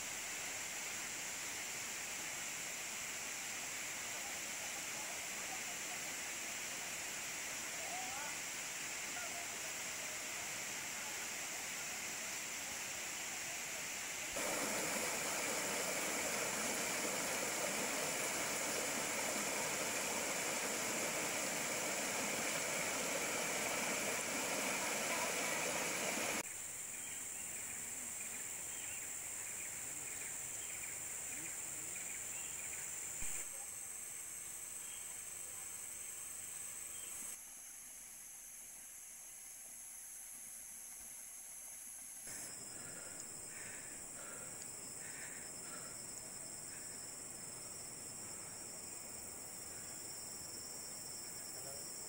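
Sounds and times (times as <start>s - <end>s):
rushing water: 12.4s - 26.4s.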